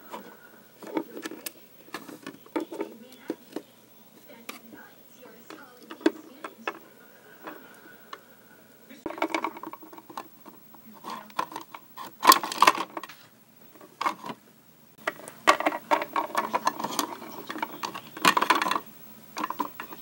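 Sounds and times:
doll and clothes handling noise: 0:00.0 - 0:08.2.

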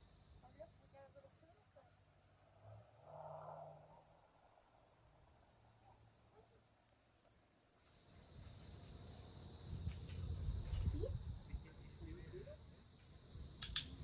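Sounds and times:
insects chorus: 0:00.0 - 0:14.0
sharp click: 0:13.6 - 0:14.0.

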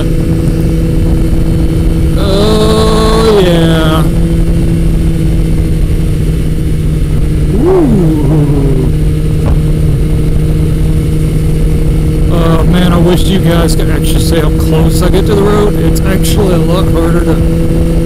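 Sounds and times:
motorcycle engine cruising: 0:00.0 - 0:18.0
wind rushing on microphone: 0:00.0 - 0:18.0
swooping tone: 0:07.4 - 0:10.0.

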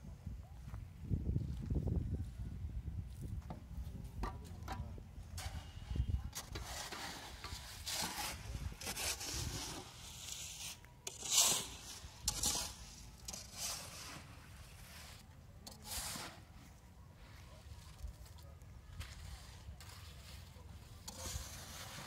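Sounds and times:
hoe scraping wet concrete: 0:05.3 - 0:16.8, 0:19.1 - 0:22.0.

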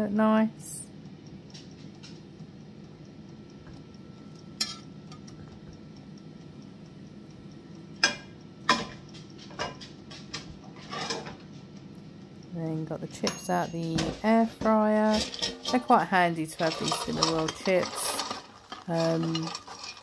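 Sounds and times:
steady low hum: 0:00.0 - 0:20.0
spatula knocking frying pan: 0:08.0 - 0:10.3, 0:13.3 - 0:20.0.

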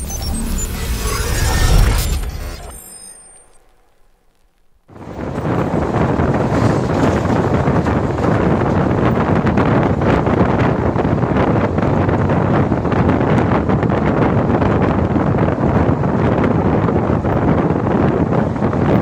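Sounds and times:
train wheels rumbling on rails: 0:04.9 - 0:19.0
wind buffeting microphone: 0:04.9 - 0:19.0.

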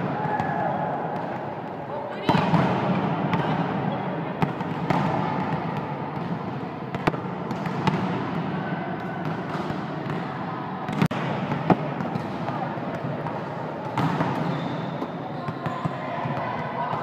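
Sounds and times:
sports hall din: 0:00.0 - 0:17.0
volleyballs smacking: 0:04.4 - 0:08.4, 0:10.9 - 0:14.5.

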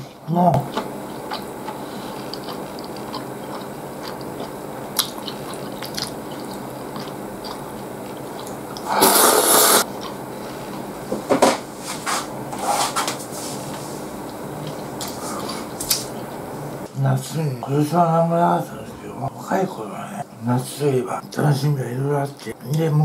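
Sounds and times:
soft chewing and mouth clicks: 0:00.7 - 0:08.9, 0:09.8 - 0:10.8
person slurping noodles: 0:08.8 - 0:09.9.

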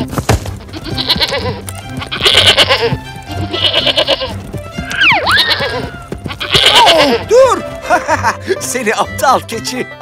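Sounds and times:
background music: 0:00.0 - 0:10.0
cartoon goat bleating: 0:00.7 - 0:04.3, 0:05.1 - 0:07.3.

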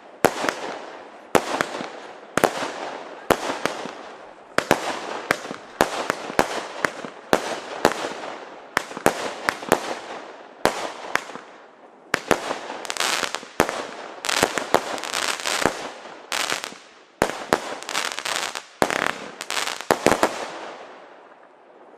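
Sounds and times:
fireworks bangs: 0:12.1 - 0:20.9
fireworks crackle: 0:12.2 - 0:20.9.

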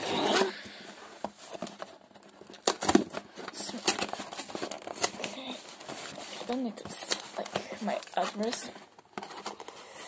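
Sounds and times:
cardboard box scraping and rustling: 0:00.0 - 0:02.0.

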